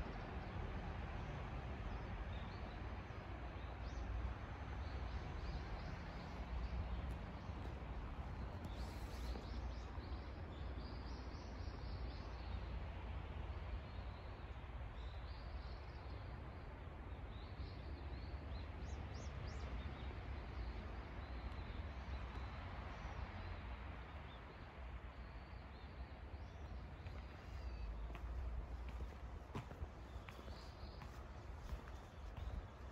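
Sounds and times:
small birds chirping: 0:06.2 - 0:12.1, 0:25.8 - 0:32.9.

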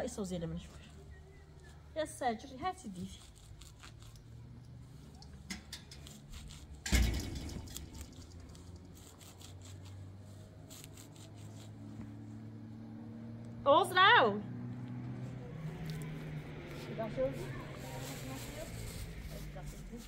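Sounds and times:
heavy thump: 0:06.8 - 0:07.7.

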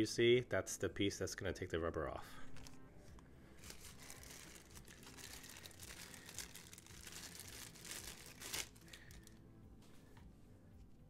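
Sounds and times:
plastic bag crinkling: 0:03.6 - 0:09.4.

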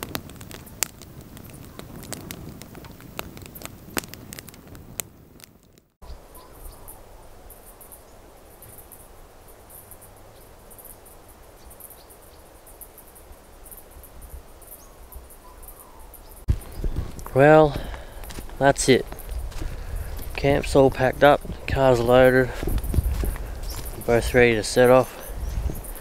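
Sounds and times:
wood fire crackling and popping: 0:00.0 - 0:06.0, 0:16.4 - 0:26.0
insects chirping: 0:06.0 - 0:26.0.

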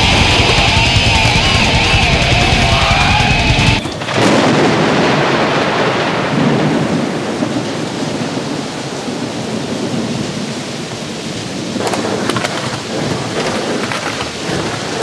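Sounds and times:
music: 0:00.0 - 0:04.0
rain hiss: 0:00.0 - 0:15.0
thunder rumble: 0:00.0 - 0:15.0.

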